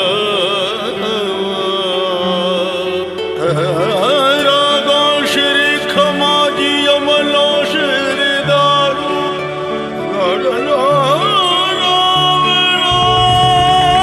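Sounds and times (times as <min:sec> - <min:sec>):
wavering ornamented melody: 0:00.4 - 0:14.0
held notes over bass line: 0:08.5 - 0:14.0.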